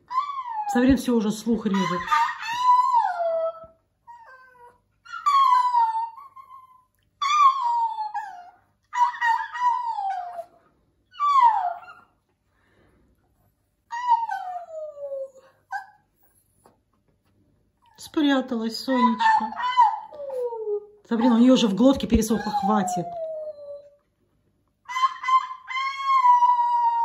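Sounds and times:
small dog howling: 1.8 - 10.5, 11.2 - 12.0, 18.9 - 21.4, 24.9 - 27.0.

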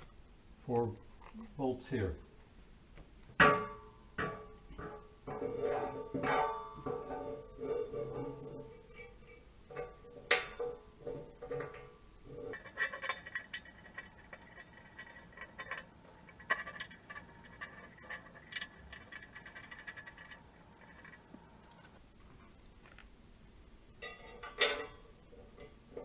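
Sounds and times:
metallic clicks and knocks: 12.5 - 22.0.

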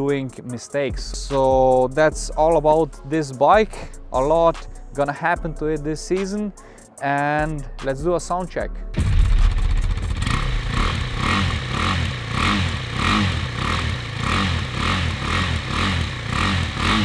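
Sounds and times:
motorcycle engine revving: 9.0 - 17.0.

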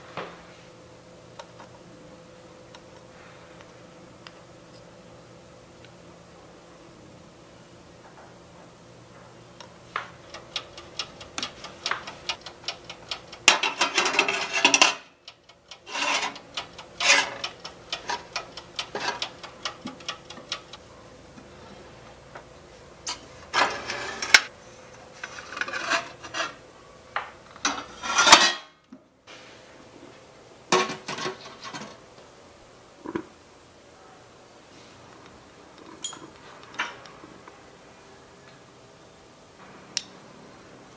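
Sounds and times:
rubbing and scraping of toy cookware: 10.3 - 15.1, 15.7 - 20.8, 23.4 - 24.5, 25.1 - 26.6, 27.6 - 28.7.

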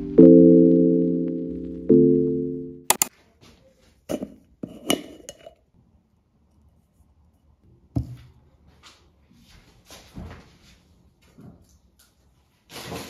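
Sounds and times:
marimba tone: 0.0 - 2.9.

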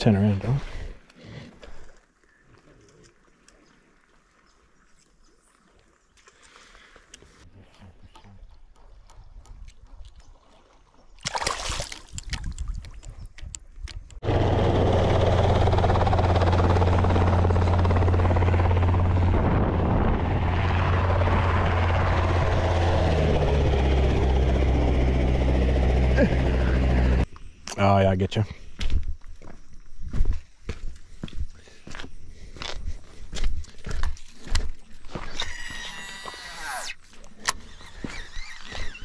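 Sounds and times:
splashing in shallow water: 1.8 - 13.6
helicopter engine and rotor: 14.2 - 27.3.

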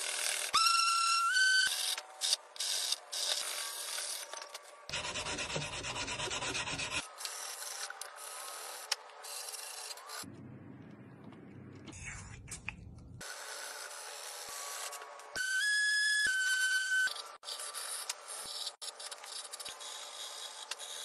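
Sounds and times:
sandpaper rubbing on wood: 4.9 - 7.0.

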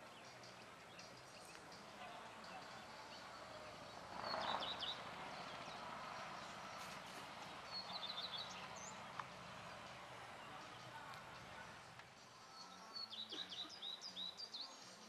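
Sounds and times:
faint outdoor background noise: 0.0 - 15.0
songbird chirping in trills: 0.0 - 15.0.

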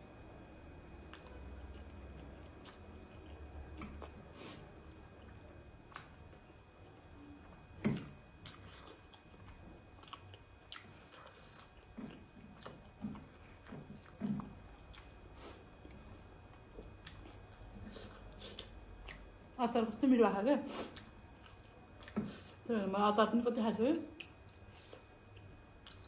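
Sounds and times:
chewing and biting: 1.1 - 4.2, 7.9 - 15.2, 24.2 - 26.0.

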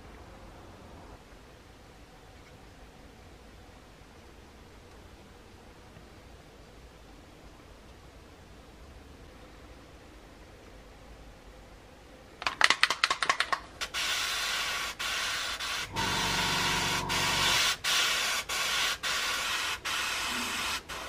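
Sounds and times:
airbrush spraying: 13.8 - 21.0
low hum: 15.9 - 17.7.

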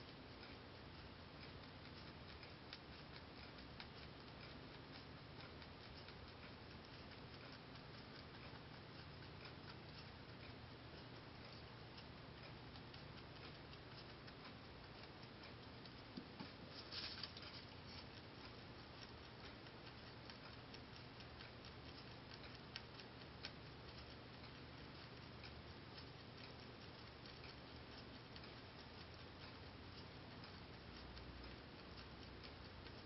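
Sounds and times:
rabbit chewing hay: 0.0 - 33.0
sharp ticks: 0.0 - 33.0.

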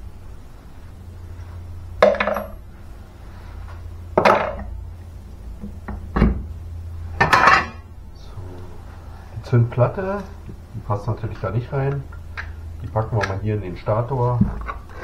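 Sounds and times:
metal parts clattering on workbench: 2.0 - 2.6.

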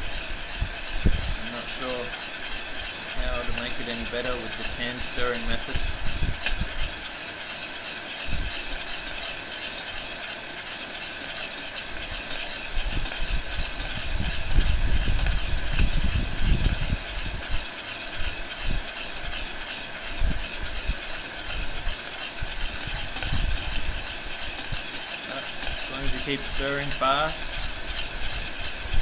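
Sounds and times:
coffee beans rattling in metal bowl: 0.0 - 29.0.

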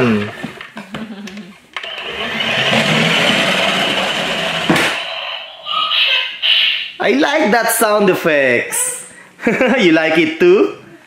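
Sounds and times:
toy truck motor whirring: 1.8 - 4.8.

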